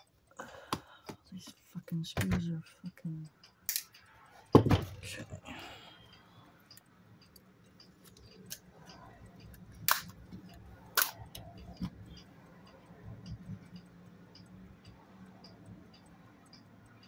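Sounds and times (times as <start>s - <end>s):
faint regular ticking: 0.0s - 17.0s
sharp clicks of camera parts: 9.8s - 10.2s, 10.9s - 11.2s.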